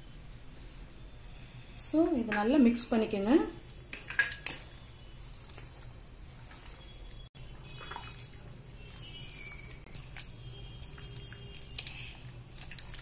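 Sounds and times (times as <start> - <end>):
hands squelching in wet batter: 5.1 - 13.0.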